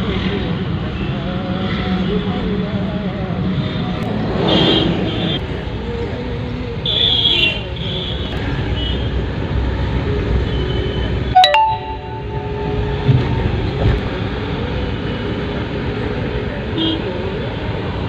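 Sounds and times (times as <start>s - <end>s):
road and engine rumble: 0.0s - 11.4s, 12.0s - 18.0s
brief tone: 11.4s - 13.8s.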